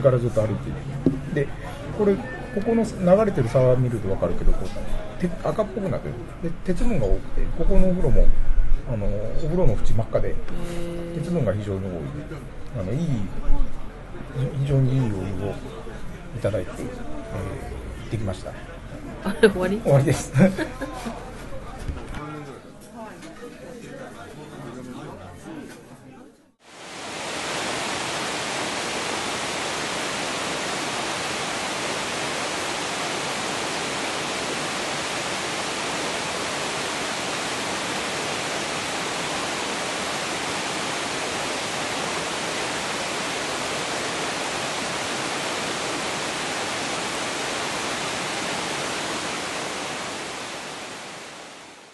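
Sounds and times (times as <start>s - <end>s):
waterfall rushing: 26.7s - 51.9s.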